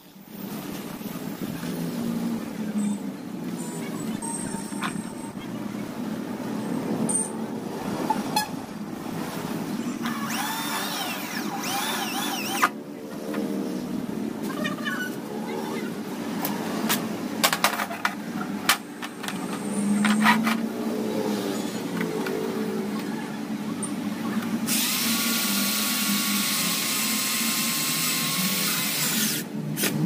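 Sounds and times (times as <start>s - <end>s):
electric drill boring: 10.0s - 12.7s, 24.7s - 29.4s.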